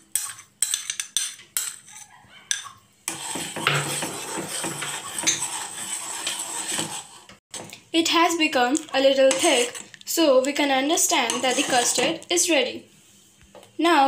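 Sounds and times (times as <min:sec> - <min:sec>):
spoon scraping a pan: 0:00.0 - 0:07.4, 0:08.8 - 0:12.4.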